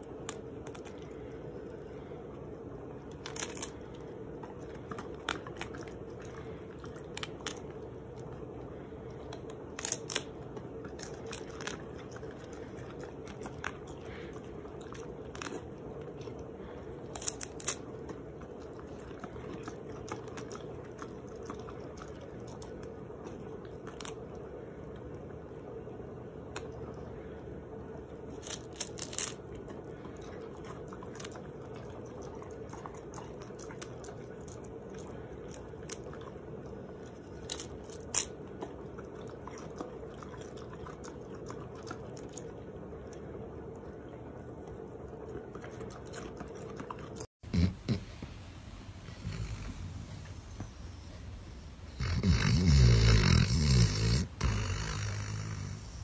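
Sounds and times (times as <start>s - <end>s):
faint steady hum: 0.0s - 56.0s
lettuce leaf crunching: 3.0s - 8.2s, 9.3s - 14.2s, 14.8s - 16.1s, 17.0s - 24.3s, 28.2s - 34.5s, 37.1s - 42.4s.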